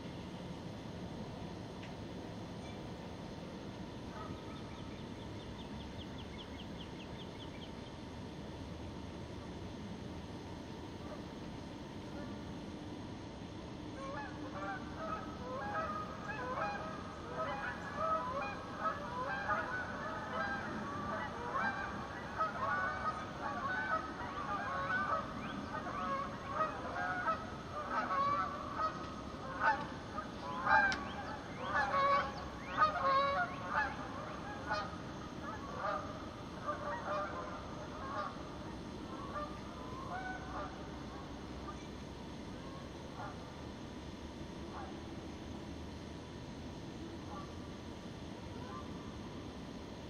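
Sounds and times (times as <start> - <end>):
geese honking: 14.0 - 38.4, 39.1 - 41.2.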